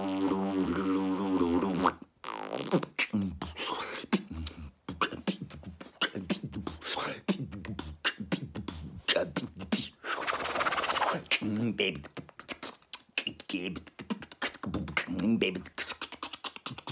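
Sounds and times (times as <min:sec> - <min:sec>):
man beatboxing: 0:00.0 - 0:16.9.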